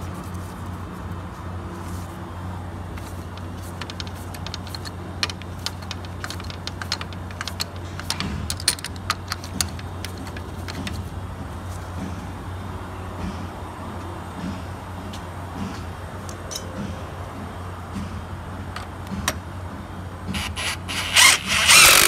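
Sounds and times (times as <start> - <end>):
socket ratchet clicking: 3.4 - 11.0.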